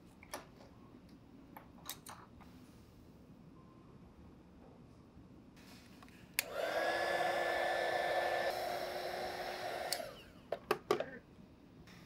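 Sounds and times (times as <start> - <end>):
heat gun switch click: 6.4 - 6.6, 9.8 - 10.1
heat gun fan whining: 6.4 - 10.6.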